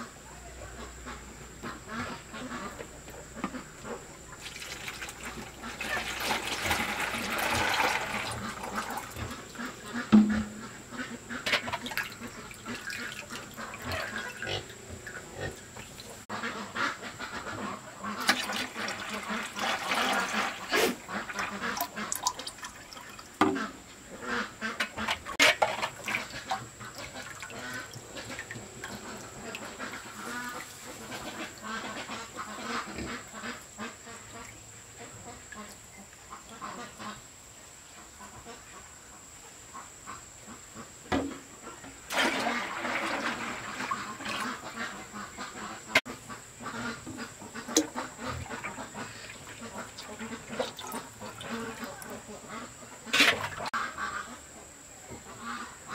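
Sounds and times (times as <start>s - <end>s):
ducks quacking: 0.0s - 37.3s, 37.9s - 55.9s
plastic scoop knocking in metal wok: 10.1s - 10.6s.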